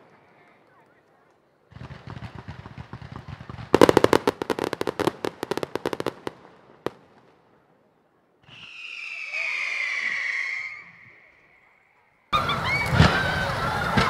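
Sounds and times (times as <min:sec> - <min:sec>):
fireworks crackling pops: 0:00.0 - 0:07.6, 0:12.4 - 0:14.0
fireworks bursting: 0:01.6 - 0:09.4, 0:12.4 - 0:14.0.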